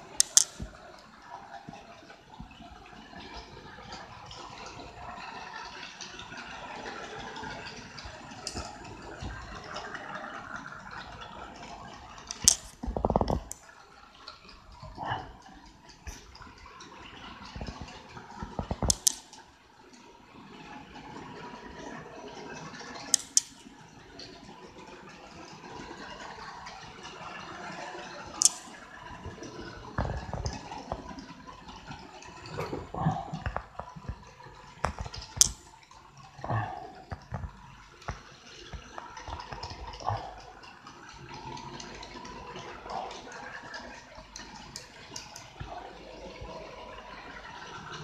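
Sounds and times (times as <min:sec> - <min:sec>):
sharp clicks: 0:18.6 - 0:19.4, 0:23.2 - 0:23.7, 0:28.4 - 0:28.8.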